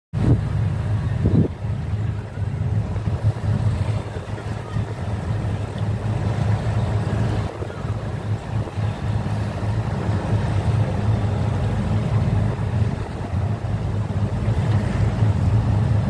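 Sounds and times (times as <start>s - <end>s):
boat engine rumbling: 0.1s - 16.0s
wind buffeting microphone: 0.1s - 16.0s
water wash: 0.2s - 16.0s.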